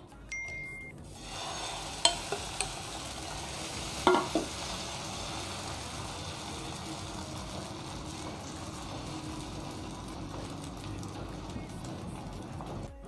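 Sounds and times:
batter sizzling in hot oil: 1.1 - 13.0
ladle clinking against pan: 2.0 - 2.8.

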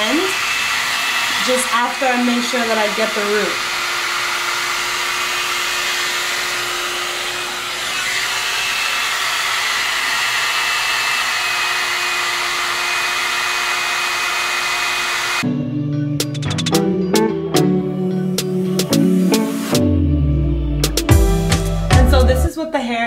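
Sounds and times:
hot-air brush blowing with motor whine: 0.0 - 15.4, 18.8 - 19.8.

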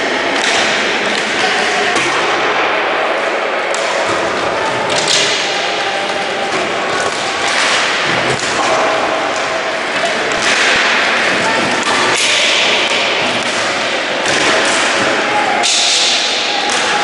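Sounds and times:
knocks and clacks of sticks: 4.9 - 17.0.

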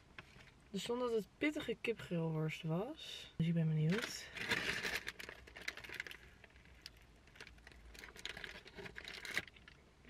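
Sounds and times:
paper wrapper crackling: 3.9 - 9.8.

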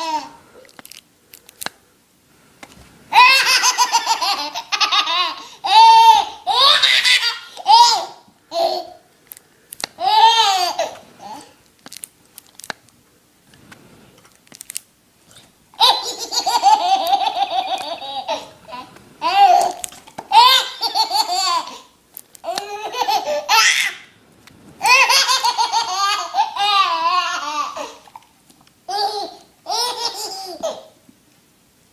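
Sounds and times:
baby laughing: 0.0 - 0.4, 3.1 - 9.0, 10.0 - 11.6, 15.8 - 24.1, 24.8 - 28.2, 28.9 - 31.0.

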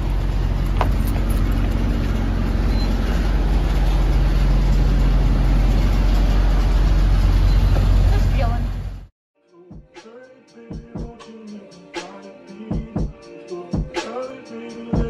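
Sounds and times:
diesel truck engine idling: 0.0 - 9.1.

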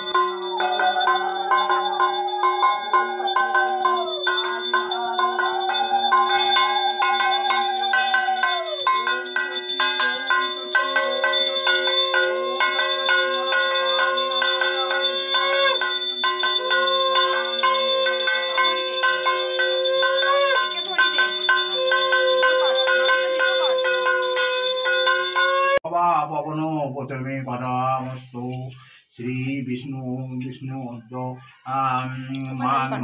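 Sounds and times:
hand bell rung rapidly: 0.0 - 25.8.

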